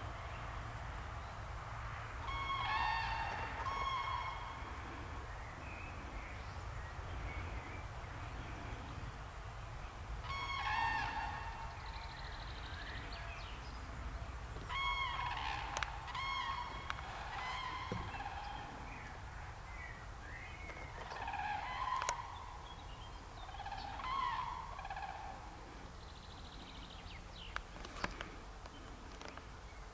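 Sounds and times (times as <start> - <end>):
crane honking calls: 2.2 - 5.2, 10.2 - 13.4, 14.6 - 19.2, 20.9 - 22.6, 23.4 - 25.8.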